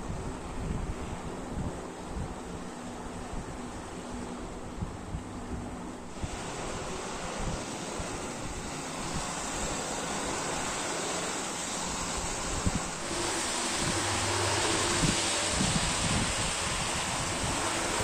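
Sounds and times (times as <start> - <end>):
model train rolling rumble: 6.1 - 18.0.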